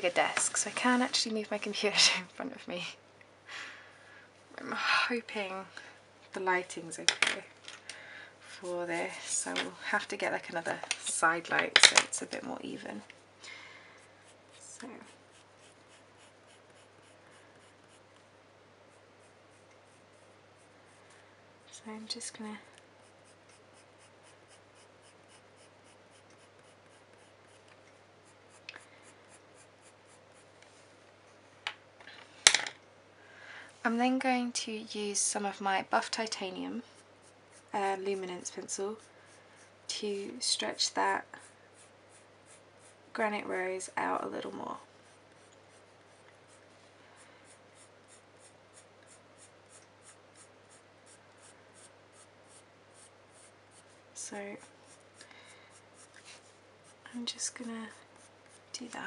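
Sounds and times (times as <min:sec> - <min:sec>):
pencil scratching on paper: 0:14.2 - 0:18.2, 0:18.9 - 0:21.1, 0:23.0 - 0:30.5, 0:36.8 - 0:39.7, 0:41.3 - 0:43.0, 0:47.4 - 0:54.0, 0:56.0 - 0:59.0.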